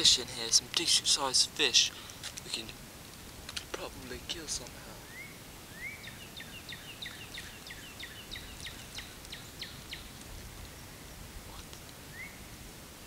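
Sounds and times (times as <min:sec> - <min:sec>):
bird calling: 0:03.6 - 0:12.6.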